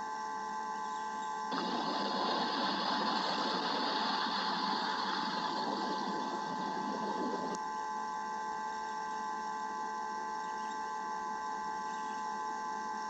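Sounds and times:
electronic whine: 0.0s - 13.0s
rain hiss: 1.5s - 7.6s.

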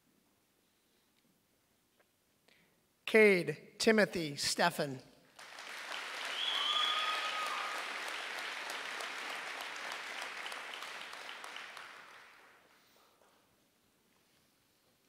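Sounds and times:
audience applauding: 5.4s - 12.7s
steady high whistle tone: 6.2s - 7.8s.

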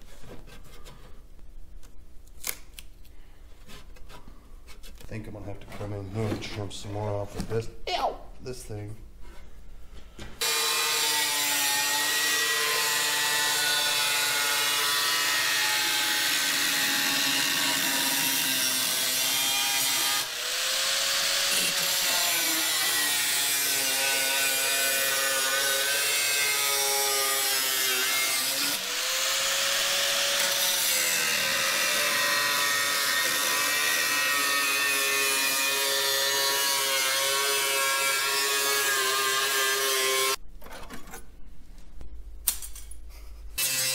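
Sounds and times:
power tool cutting steel: 10.4s - 40.4s, 43.6s - 43.9s.

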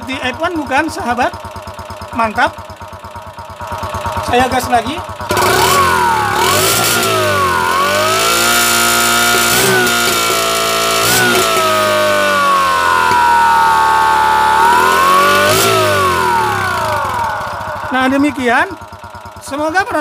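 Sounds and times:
electronic engine whine: 5.3s - 20.0s.

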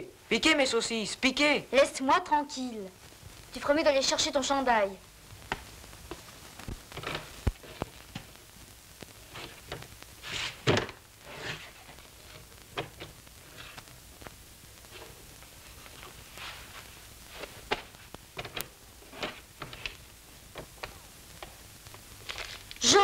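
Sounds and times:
rustling: 2.9s - 23.0s.

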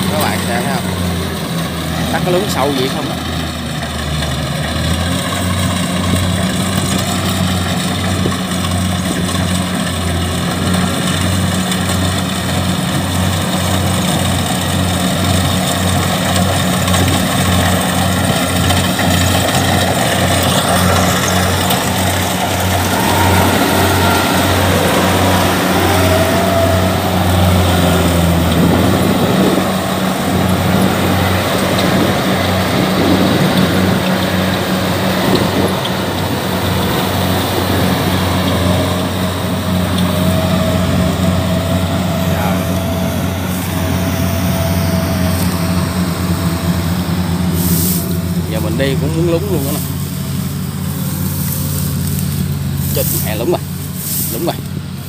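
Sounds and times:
combine harvester diesel engine: 0.0s - 55.0s.

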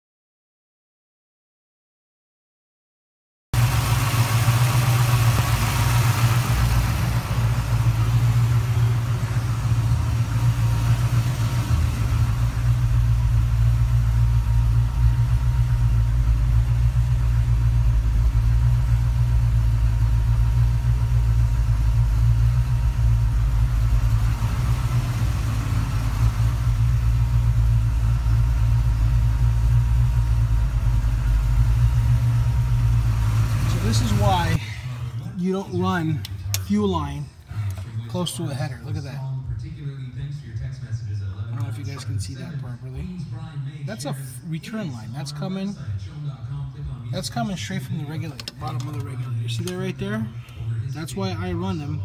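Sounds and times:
car engine idling: 3.6s - 52.0s.

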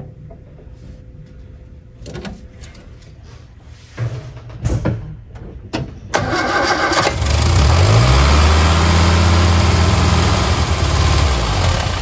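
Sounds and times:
car engine starting and running: 6.2s - 12.0s.

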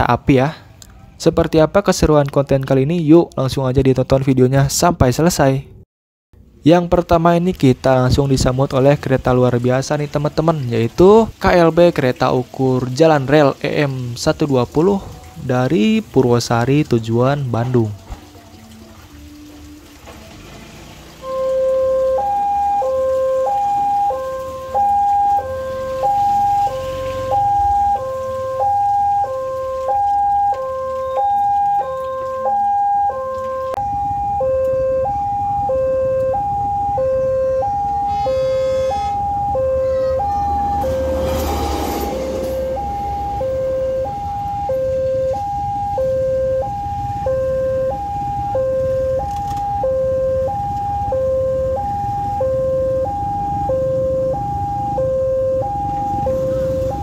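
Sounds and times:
level crossing two-tone alarm: 21.2s - 57.0s
horn blast: 34.5s - 45.2s
rail car rumbling past: 38.0s - 44.6s.

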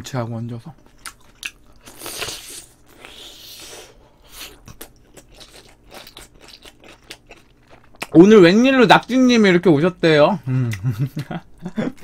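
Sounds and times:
close wet chewing: 4.3s - 8.2s.

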